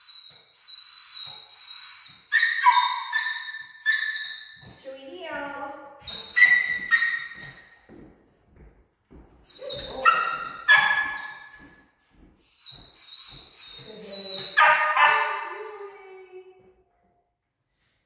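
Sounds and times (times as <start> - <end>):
dog yipping and whining: 0.0 - 7.8, 9.4 - 11.8, 12.4 - 15.8.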